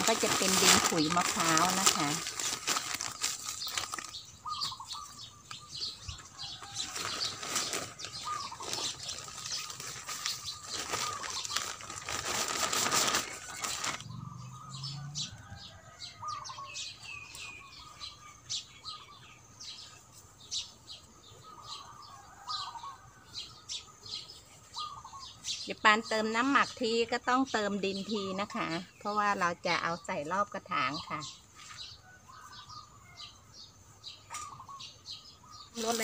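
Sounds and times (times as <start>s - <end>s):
soil pouring from plastic sack: 0.0s - 4.2s, 6.9s - 14.0s
small birds chirping: 0.0s - 36.0s.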